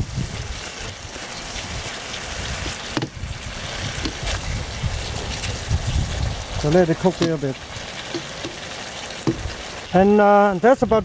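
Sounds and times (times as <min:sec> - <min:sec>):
sauce sizzling and bubbling in a wok: 0:00.0 - 0:10.7.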